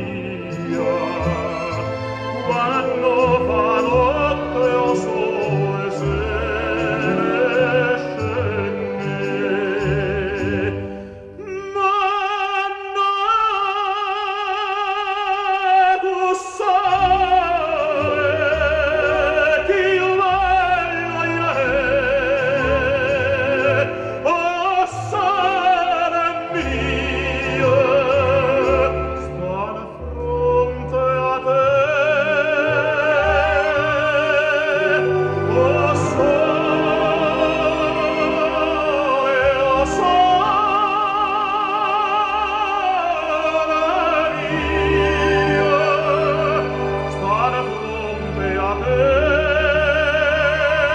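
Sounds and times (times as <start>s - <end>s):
operatic singing: 0.0s - 50.9s
orchestral accompaniment: 0.0s - 50.9s.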